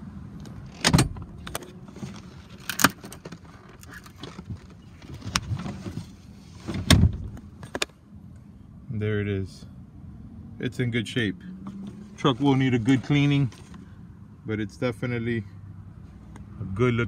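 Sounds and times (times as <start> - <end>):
seat latch clunks and clicks: 0.4 - 1.8, 2.6 - 5.6, 6.7 - 8.0.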